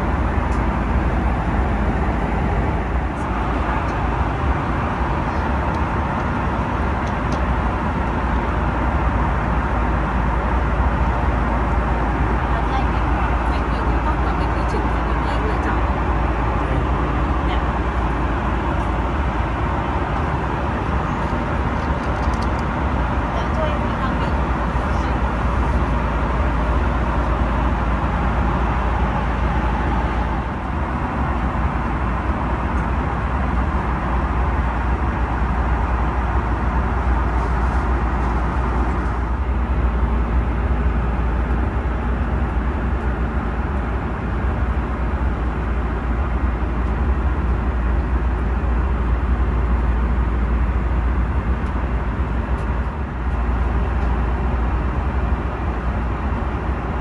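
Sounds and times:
aircraft cabin engine noise: 0.0s - 57.0s.

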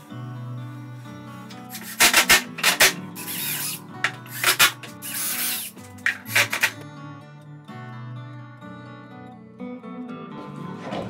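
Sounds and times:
soft background music: 0.0s - 11.0s
cordless drill driving screws: 3.2s - 6.7s.

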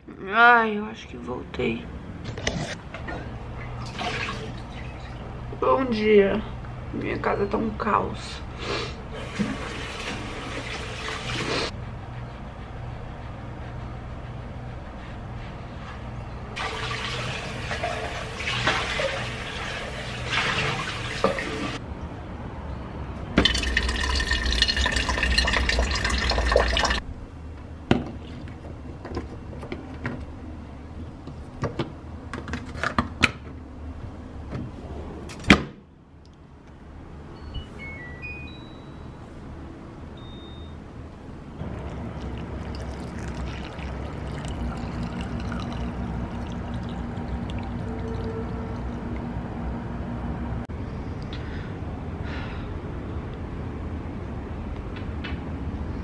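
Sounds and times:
running splashing water: 16.6s - 21.8s, 23.4s - 27.0s, 41.6s - 49.0s.

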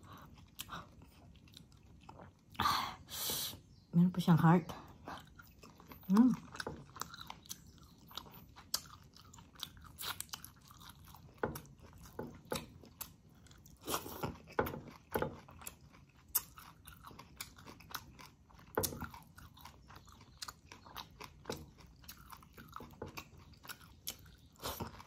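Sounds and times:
person chewing food: 0.0s - 2.6s, 4.9s - 25.0s.

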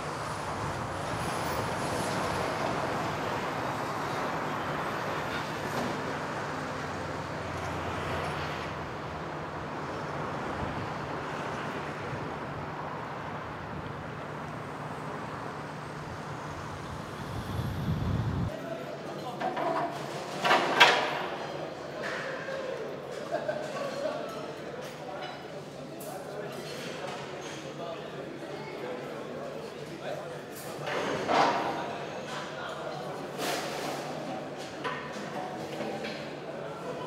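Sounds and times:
road traffic noise: 0.0s - 18.6s.

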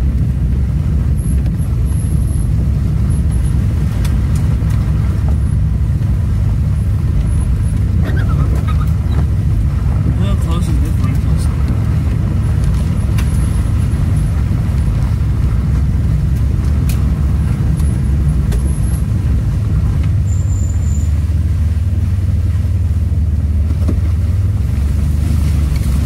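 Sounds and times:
car engine drone from inside: 0.0s - 26.0s.

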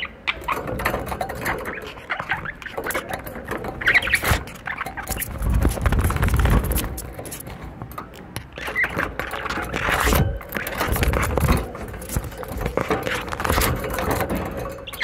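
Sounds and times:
bird chirps: 0.0s - 0.7s, 3.8s - 5.5s
wings fluttering: 0.0s - 7.6s, 8.5s - 15.0s
rattling and scraping on cage wire: 0.0s - 15.0s.

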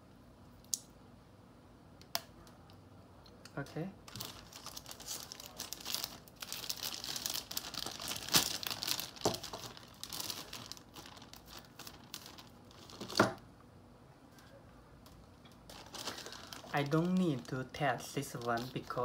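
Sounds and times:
plastic bags crinkling: 4.0s - 13.4s, 15.0s - 19.0s.

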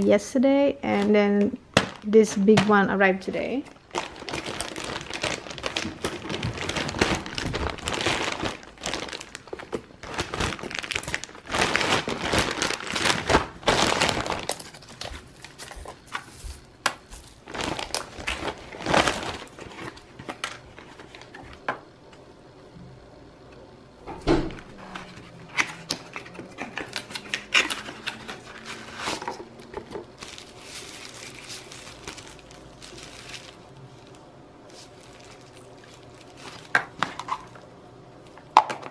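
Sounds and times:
plastic bag crinkling: 0.8s - 21.6s, 24.6s - 38.9s
scissors cutting plastic: 24.9s - 30.0s.

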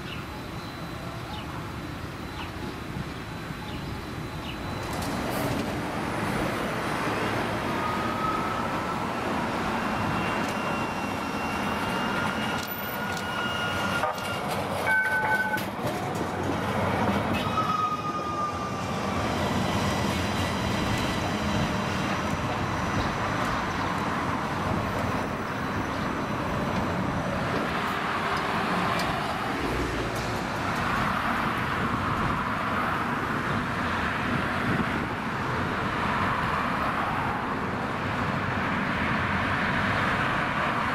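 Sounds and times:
road traffic: 0.0s - 40.9s
streetcar running: 0.0s - 40.9s
high-pitched squeals: 7.7s - 15.7s, 17.3s - 23.2s.

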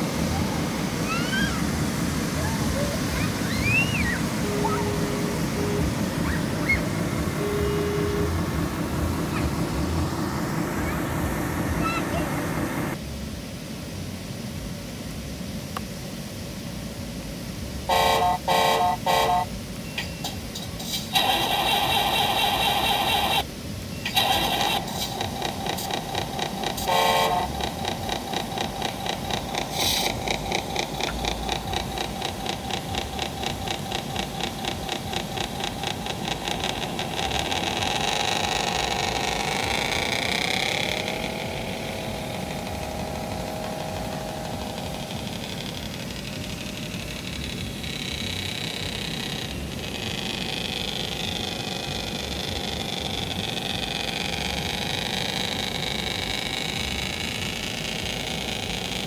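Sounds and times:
brief tone: 3.8s - 9.6s, 17.9s - 20.4s
toy truck motor pulsing: 4.4s - 12.2s, 17.9s - 23.5s, 24.1s - 59.0s.

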